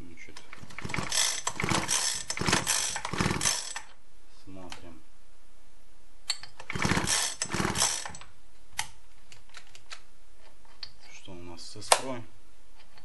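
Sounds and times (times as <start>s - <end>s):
recoil starter pulled: 0.5s - 3.9s, 6.6s - 8.2s
engine turning over: 0.6s - 3.9s, 6.6s - 8.2s.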